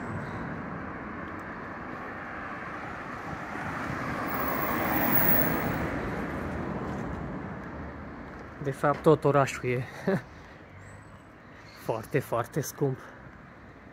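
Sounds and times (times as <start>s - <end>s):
background traffic: 0.0s - 13.9s
car passing: 1.3s - 8.4s.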